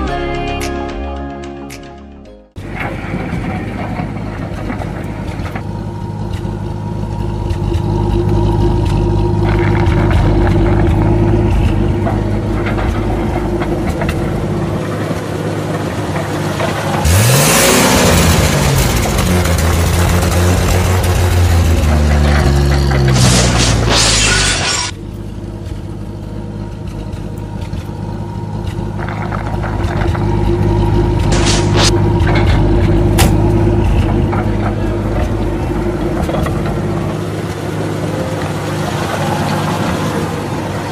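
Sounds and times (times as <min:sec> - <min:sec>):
engine drone revving: 0:02.6 - 0:40.9
burst of noise: 0:23.0 - 0:24.9, 0:31.2 - 0:32.0.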